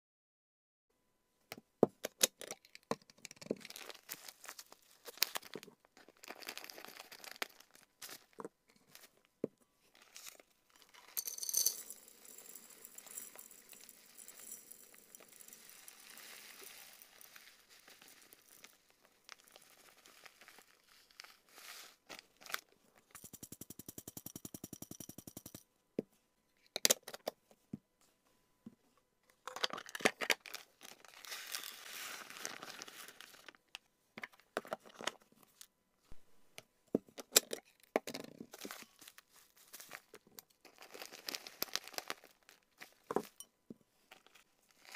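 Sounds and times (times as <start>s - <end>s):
plastic bag crinkling: 3.6s - 9.1s, 11.8s - 22.7s, 29.9s - 33.6s, 38.6s - 43.2s
dry herbs poured into glass jar: 10.0s - 22.6s, 30.8s - 33.4s
fast small clicks: 23.2s - 25.6s.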